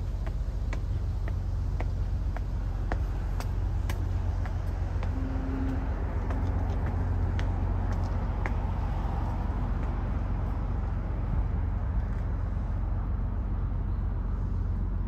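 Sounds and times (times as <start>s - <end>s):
footsteps on concrete steps: 0.0s - 10.8s
low rumble of city noise: 0.0s - 15.0s.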